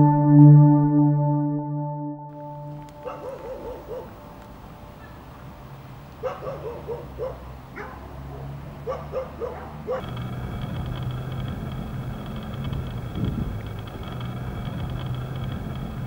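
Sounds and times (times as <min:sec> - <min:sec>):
dog yapping barks: 0:03.0 - 0:04.2, 0:06.2 - 0:10.1
low hum with high whine: 0:10.0 - 0:16.0.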